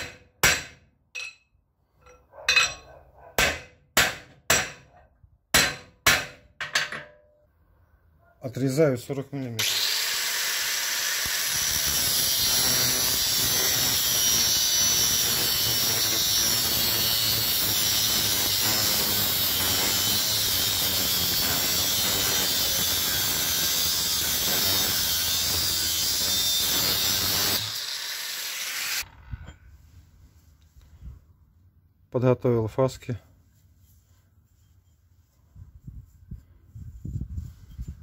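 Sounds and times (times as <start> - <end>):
angle grinder cutting steel pipe: 9.6 - 29.2.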